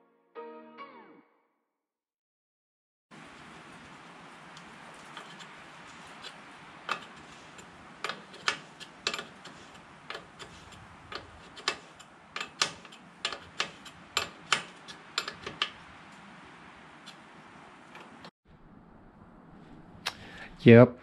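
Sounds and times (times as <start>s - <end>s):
clicks and taps of metal fitting: 6.2s - 15.8s.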